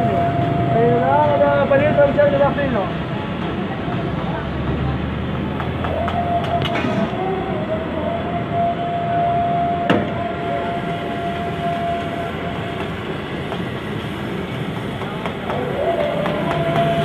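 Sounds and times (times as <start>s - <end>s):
gas burner roar: 5.1s - 17.0s.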